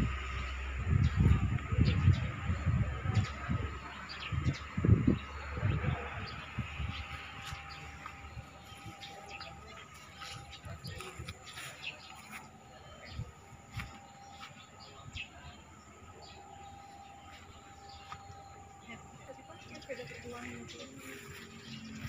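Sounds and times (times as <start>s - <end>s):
bird chirps: 0.2s - 22.0s.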